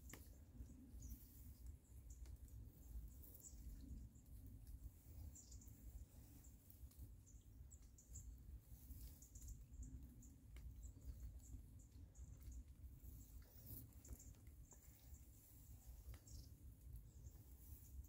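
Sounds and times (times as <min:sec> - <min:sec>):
faint high-pitched chirps: 0:00.0 - 0:18.0
faint low rumble: 0:00.0 - 0:18.0.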